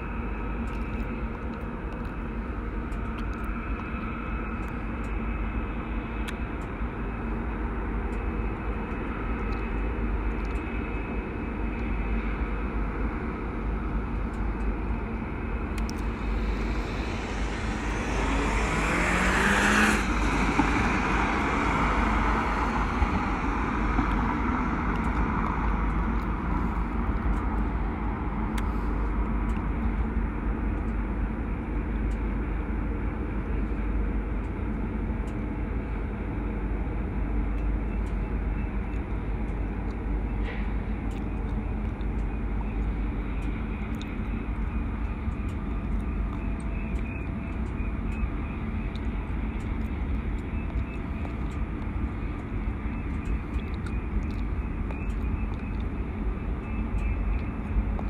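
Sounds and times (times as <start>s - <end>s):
low wind rumble: 0.0s - 58.0s
road traffic: 0.0s - 58.0s
vehicle passing close: 15.8s - 26.7s.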